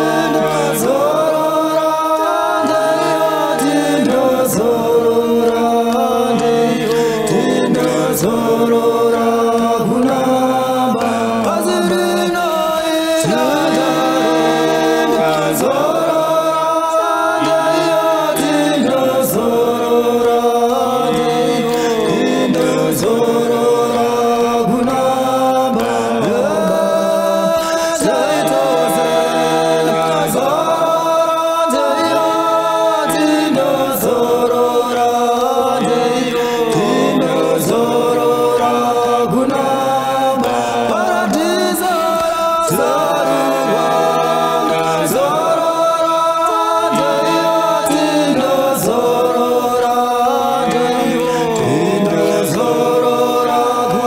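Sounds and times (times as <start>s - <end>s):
group singing in harmony: 0.0s - 54.0s.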